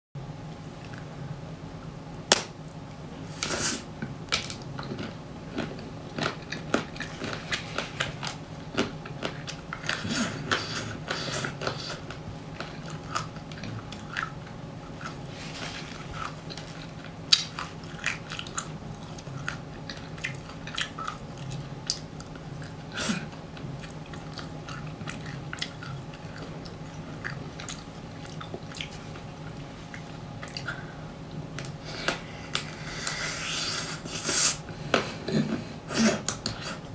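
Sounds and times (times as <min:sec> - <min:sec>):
crunchy chewing: 0:03.4 - 0:31.0.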